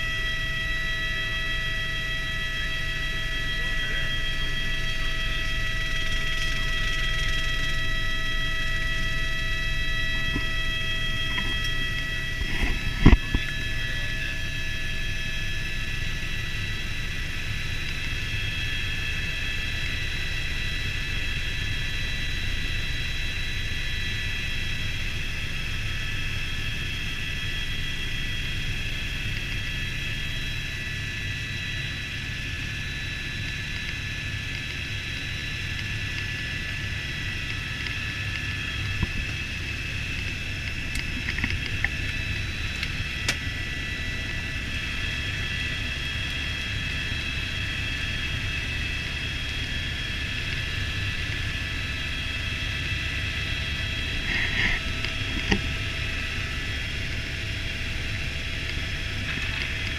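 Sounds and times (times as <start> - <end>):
helicopter turbine whine: 0.0 - 59.9
rotor rumble: 0.0 - 59.9.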